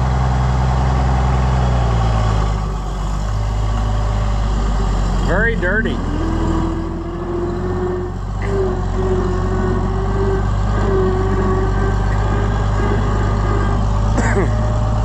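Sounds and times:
tractor engine idling: 0.0 - 15.0
mid-pitched whine: 9.4 - 15.0.

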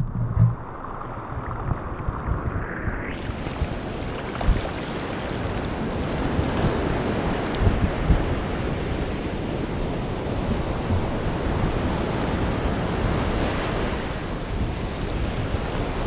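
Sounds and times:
dull low thumps: 0.0 - 2.6
ocean surf washing: 0.0 - 16.0.

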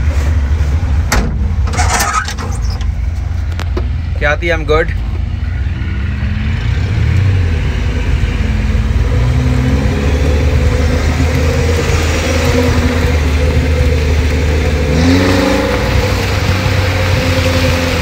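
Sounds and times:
vehicle engine under load: 0.0 - 18.0.

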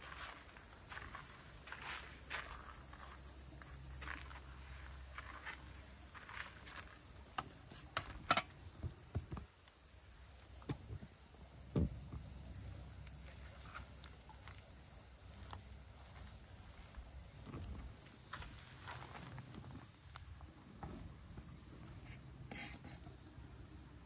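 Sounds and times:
footsteps: 0.0 - 7.0, 15.3 - 20.2
faint high-pitched hiss: 0.0 - 24.0.

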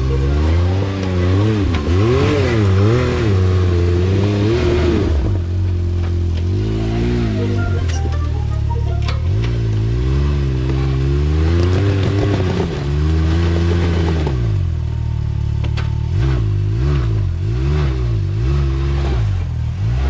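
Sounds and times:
utv engine revving: 0.0 - 7.5, 9.2 - 20.0.

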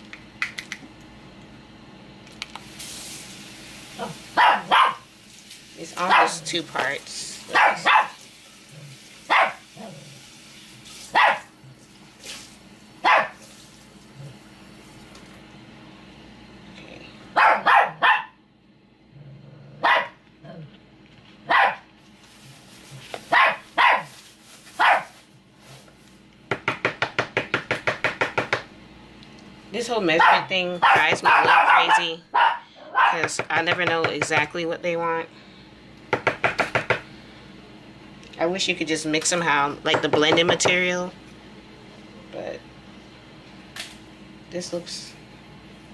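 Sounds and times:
dog barking: 4.0 - 5.1, 6.1 - 6.4, 7.5 - 8.2, 9.3 - 9.6, 11.1 - 11.5, 13.0 - 13.4, 17.3 - 18.4, 19.8 - 20.2, 21.4 - 21.9, 23.3 - 24.1, 24.8 - 25.1, 30.2 - 33.3.

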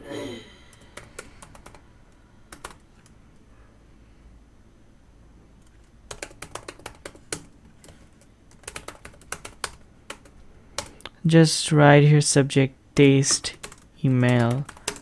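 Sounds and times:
computer keyboard typing: 0.7 - 1.8, 2.5 - 3.1, 5.6 - 11.0, 13.0 - 15.0.

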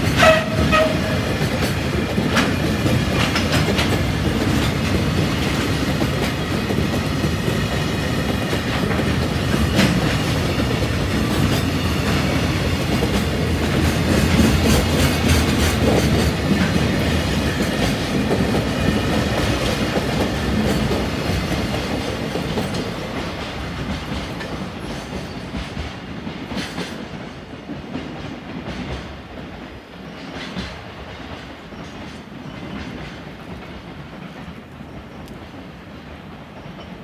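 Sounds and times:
wheels clicking over rail joints: 0.0 - 29.1
freight train rolling past: 0.0 - 37.0.

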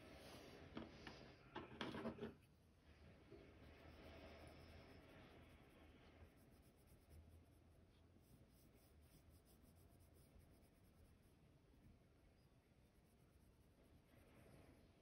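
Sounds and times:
colored pencil scratching on paper: 3.5 - 11.6.

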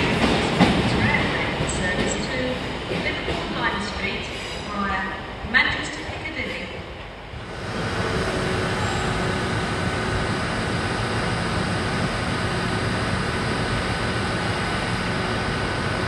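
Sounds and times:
train diesel engines rumbling: 0.0 - 16.0
constant whine: 7.3 - 16.0.

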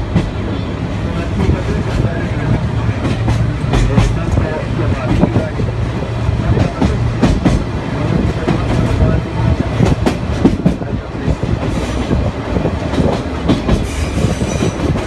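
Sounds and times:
train carriage rumble: 0.0 - 15.0.

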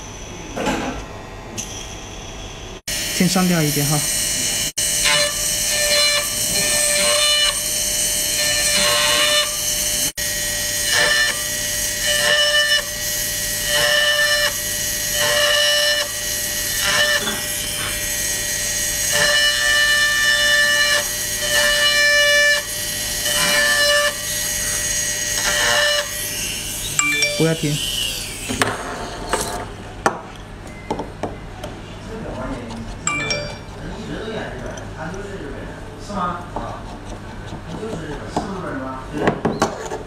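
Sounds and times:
micro grinder whining: 2.9 - 29.6.

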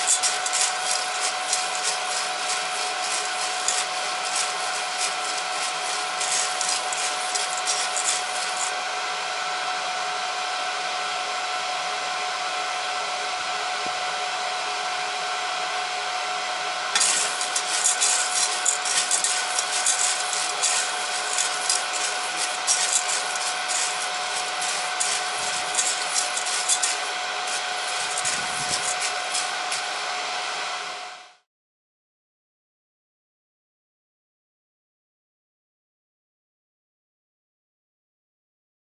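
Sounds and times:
coffee beans rustling and rattling: 0.0 - 8.8, 17.0 - 29.9
fan whirring: 0.0 - 31.2.

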